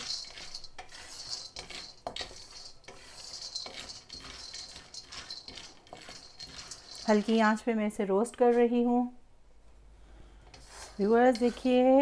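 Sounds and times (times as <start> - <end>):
peanuts rattling in a wok: 0.0 - 7.7, 10.5 - 12.0
wooden spatula scraping a pan: 0.0 - 8.9, 10.5 - 12.0.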